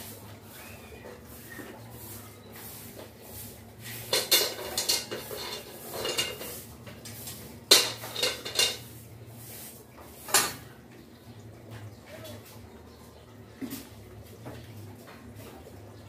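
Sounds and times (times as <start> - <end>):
metal clattering against metal: 7.7 - 8.8.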